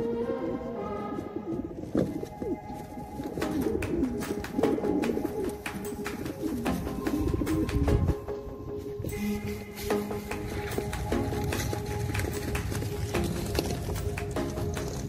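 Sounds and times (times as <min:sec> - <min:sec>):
pigeons cooing: 0:00.0 - 0:09.2
background music held tones: 0:00.0 - 0:15.0.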